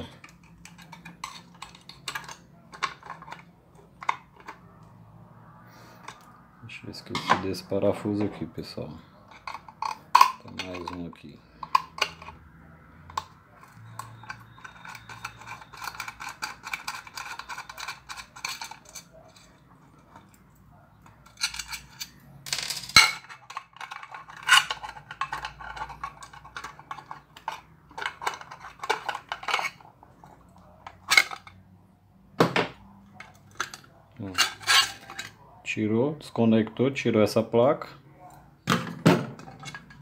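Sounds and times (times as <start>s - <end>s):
nuts clinking on a table: 21.3s - 29.8s
pliers scraping metal nuts: 23.1s - 29.8s, 34.3s - 35.3s.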